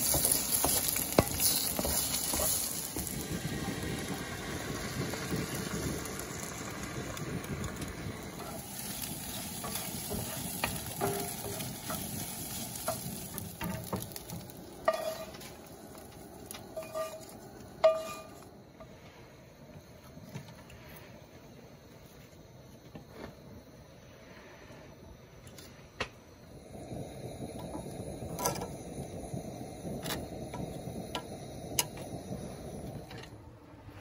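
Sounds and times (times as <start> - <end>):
wooden spoon scraping skillet: 0.0 - 3.1, 8.4 - 18.5
spoon knocking skillet: 0.0 - 4.3, 6.5 - 18.5
eggs sizzling in skillet: 0.0 - 34.0.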